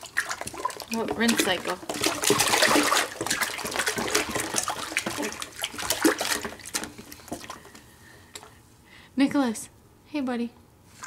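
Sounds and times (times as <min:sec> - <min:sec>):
baby splashing water in a sink: 0:00.0 - 0:08.6.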